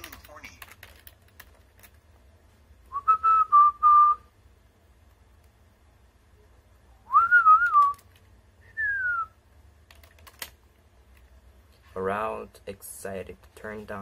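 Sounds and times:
person whistling: 2.9 - 4.3, 7.1 - 8.0, 8.6 - 9.4.

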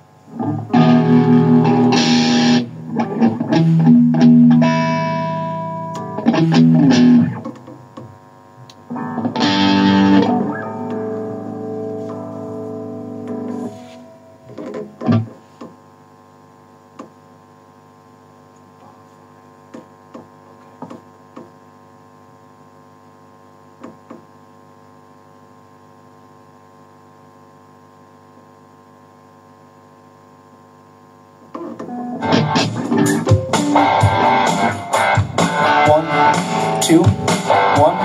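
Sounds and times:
guitar amplifier humming: 0.0 - 38.0
distorted guitar note: 0.3 - 7.6, 8.9 - 15.4, 31.9 - 38.0.

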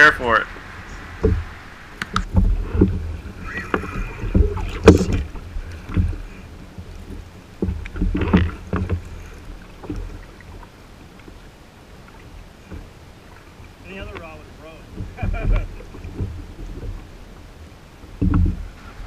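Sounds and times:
wind on microphone: 0.0 - 11.2
water slapping against hull: 0.2 - 19.0
gear knocking against hull: 2.1 - 6.3, 18.1 - 18.7.

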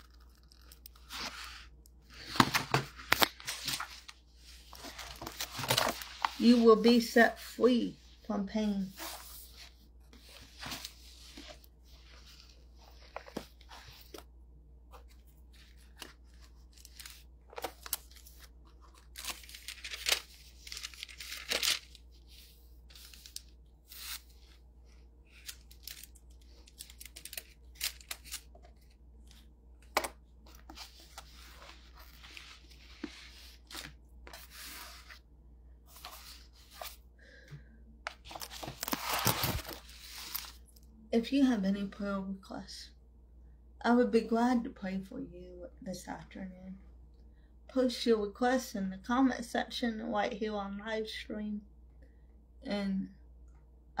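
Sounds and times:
paper rustling and crackling: 0.0 - 6.8, 15.0 - 24.6, 25.3 - 35.2, 38.1 - 40.6.

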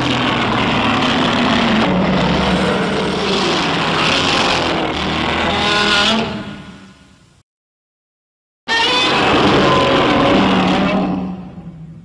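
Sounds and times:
monster roar: 0.0 - 6.7, 8.7 - 11.6.

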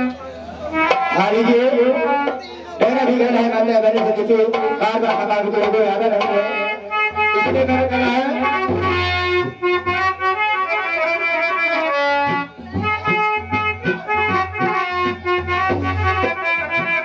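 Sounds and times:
reedy wind instrument melody: 0.0 - 17.0
low drum beats: 12.2 - 17.0.

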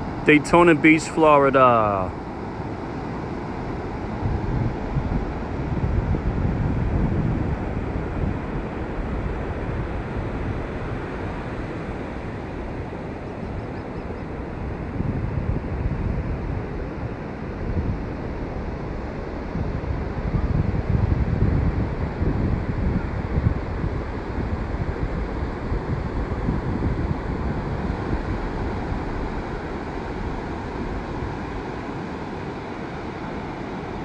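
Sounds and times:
ocean surf rushing: 0.0 - 13.6
wind buffeting microphone: 2.1 - 34.0.

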